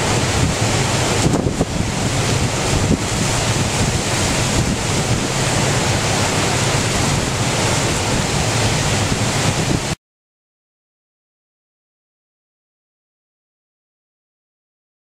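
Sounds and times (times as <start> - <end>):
heavy surf breaking: 0.0 - 10.0
wind buffeting microphone: 0.0 - 10.0.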